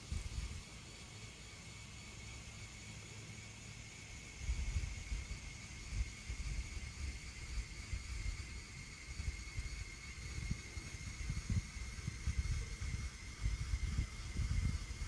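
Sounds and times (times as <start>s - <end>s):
thin high-pitched whine and hiss: 0.0s - 15.0s
wind buffeting microphone: 9.2s - 15.0s.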